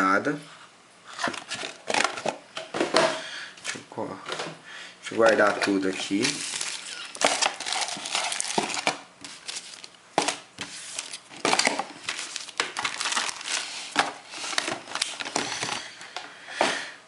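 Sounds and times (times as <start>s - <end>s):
cardboard box rustling and crackling: 6.1s - 15.8s.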